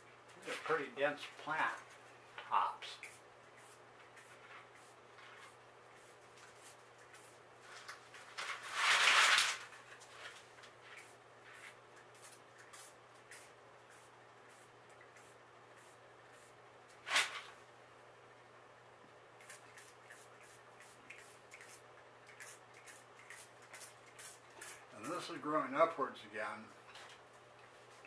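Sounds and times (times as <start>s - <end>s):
spray bottle hissing: 12.2s - 16.5s, 19.4s - 21.8s, 22.4s - 24.8s.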